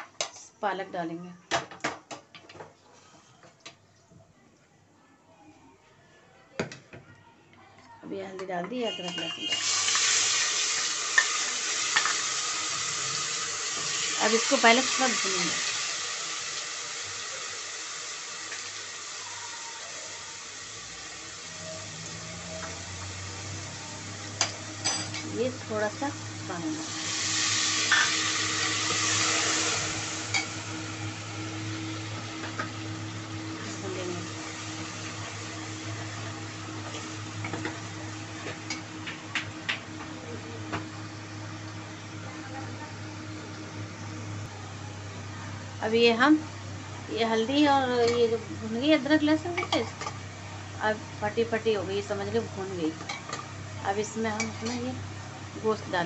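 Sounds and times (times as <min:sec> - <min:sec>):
paste sizzling in hot oil: 0:08.8 - 0:39.1.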